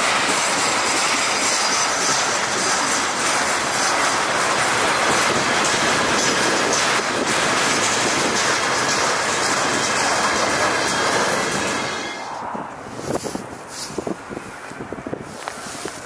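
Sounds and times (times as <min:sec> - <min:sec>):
train wheels rolling on rails: 0:00.0 - 0:16.0.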